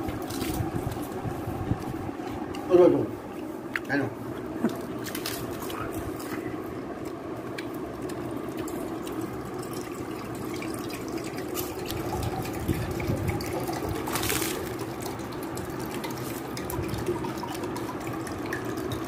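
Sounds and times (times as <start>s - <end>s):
running water: 8.2s - 19.0s.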